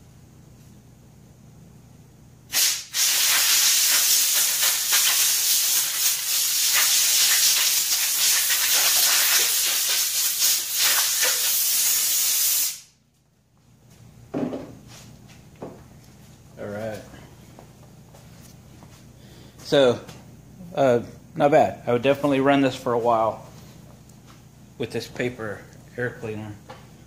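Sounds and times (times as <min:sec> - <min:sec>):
compressed air blowgun blasting: 0:02.5 - 0:12.9.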